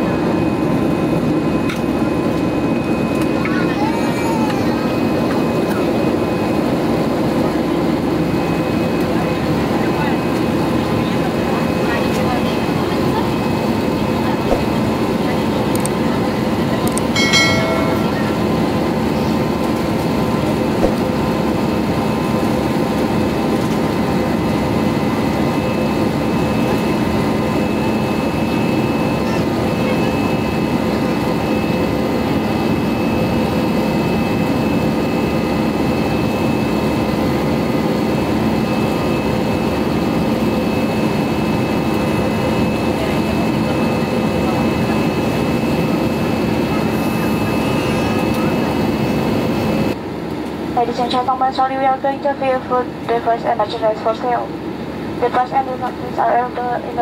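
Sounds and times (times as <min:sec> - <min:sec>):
airplane cabin drone: 0:00.0 - 0:57.0
brief ringing tone: 0:17.2 - 0:18.9.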